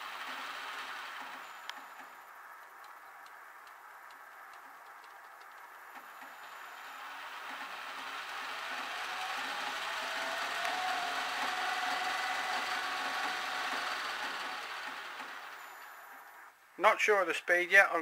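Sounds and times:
lathe motor whining: 0.0s - 2.6s, 5.5s - 16.5s.

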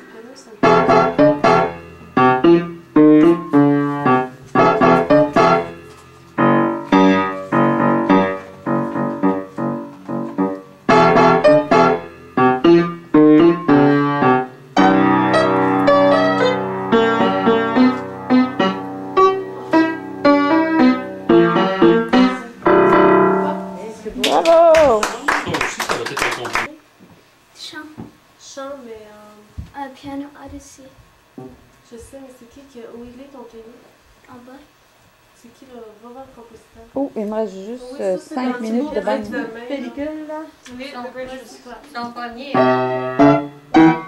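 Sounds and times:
upright piano playing: 0.6s - 26.7s, 42.5s - 44.0s.

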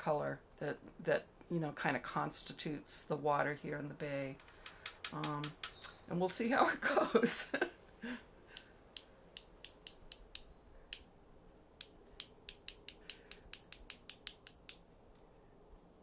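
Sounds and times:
paintbrush tapping clicks: 4.5s - 6.4s, 8.6s - 11.1s, 11.8s - 14.8s.

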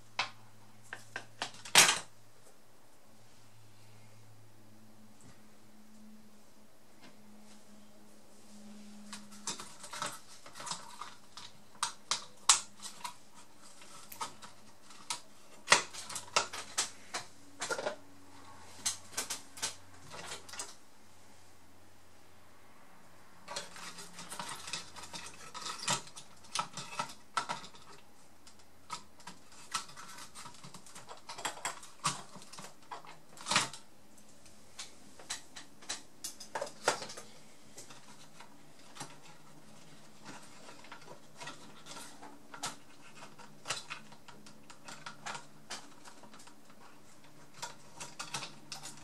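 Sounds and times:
faint low hum: 0.0s - 49.0s.

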